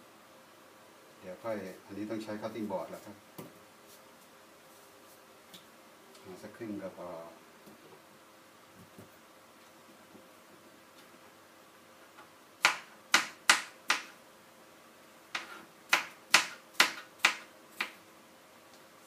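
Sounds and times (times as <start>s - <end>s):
knife chopping on cutting board: 15.3s - 18.0s.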